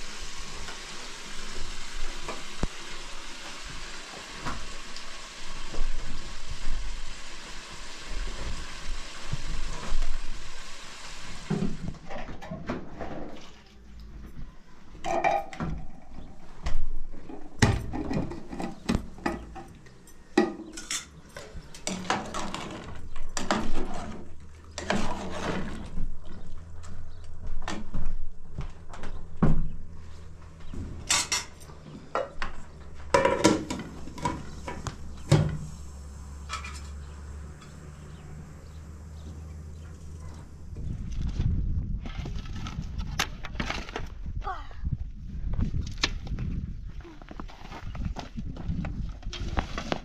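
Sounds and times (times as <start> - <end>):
metal utensils clinking on pots: 18.2 - 22.7, 31.1 - 32.4
steady low hum: 25.8 - 42.1.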